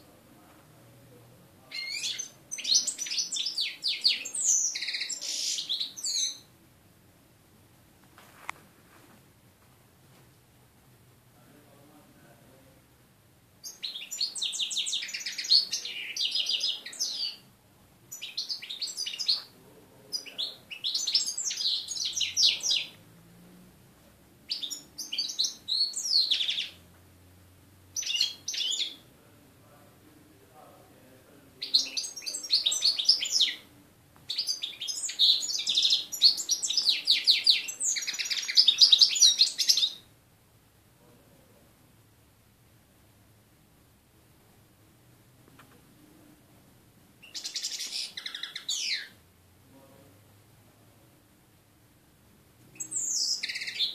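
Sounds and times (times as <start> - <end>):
finch twittering song: 1.7 - 6.5, 13.6 - 17.4, 18.1 - 19.5, 20.1 - 23.0, 24.5 - 26.8, 28.0 - 29.0, 31.6 - 33.6, 34.3 - 40.1, 47.2 - 49.2, 52.7 - 53.9.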